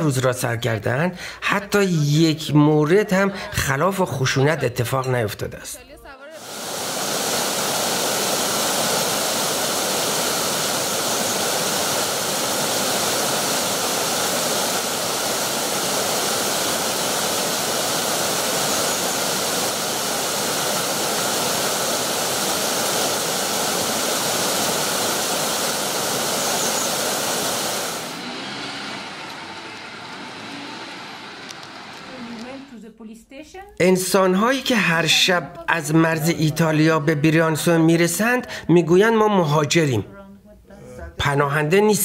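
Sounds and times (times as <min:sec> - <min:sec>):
stream rushing over rocks: 0:06.4 - 0:32.1.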